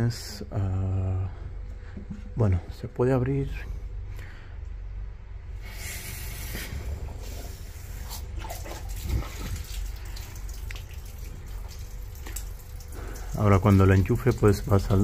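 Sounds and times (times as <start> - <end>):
water hissing through hose: 5.6 - 10.8.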